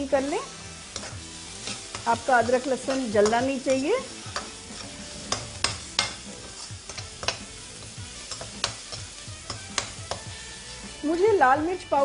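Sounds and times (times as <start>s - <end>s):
low sizzle of frying: 0.0s - 12.0s
spatula knocking against wok: 2.9s - 10.3s.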